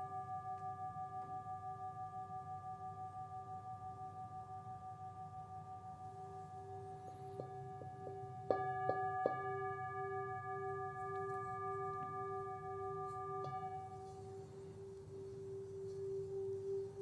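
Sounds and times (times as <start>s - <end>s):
bell-like tones: 0.0s - 17.0s
soft steady drone: 0.0s - 17.0s
chime strikes: 6.9s - 14.8s.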